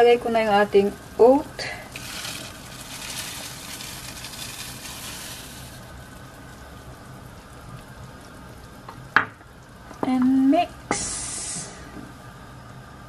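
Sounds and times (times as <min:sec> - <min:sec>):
broth simmering: 0:00.0 - 0:12.3
oats pouring into pan: 0:01.8 - 0:06.3.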